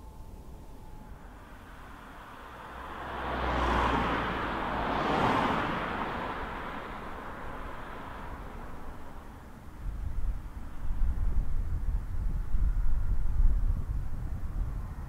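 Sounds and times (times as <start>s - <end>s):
vehicle passing by: 1.2s - 9.8s.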